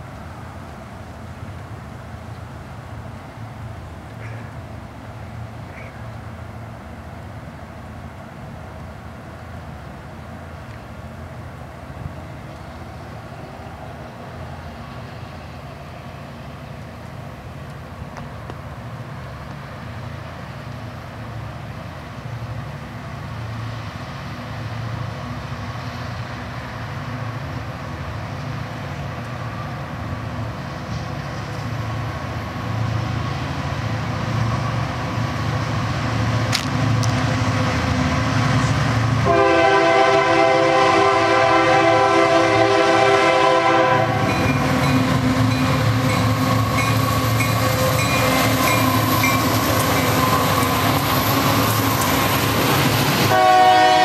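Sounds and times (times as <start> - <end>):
diesel locomotive engine rumble: 0.0 - 54.0
multi-note train air horn: 39.2 - 44.4, 53.3 - 54.0.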